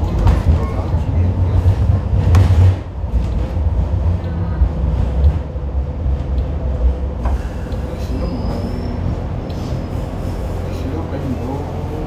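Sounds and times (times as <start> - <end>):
constant hum: 0.0 - 12.0
rail car rumbling on track: 0.0 - 12.0.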